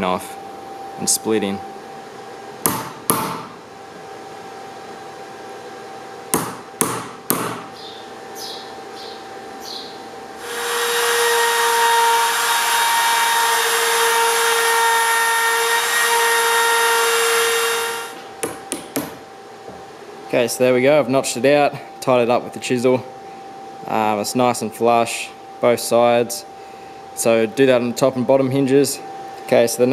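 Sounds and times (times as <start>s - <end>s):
chisel knocks: 2.6s - 3.5s, 6.3s - 7.7s, 18.4s - 19.2s
router whining: 10.4s - 18.2s.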